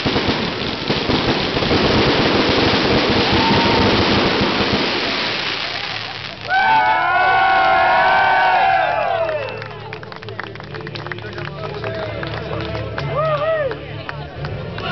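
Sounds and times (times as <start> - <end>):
fireworks crackling: 0.0 - 8.5
people cheering: 3.0 - 4.4, 5.7 - 14.9.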